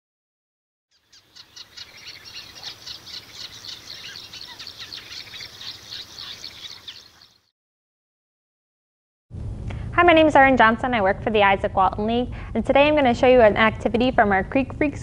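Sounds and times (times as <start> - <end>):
songbirds chirping and trilling: 0.9 - 7.5.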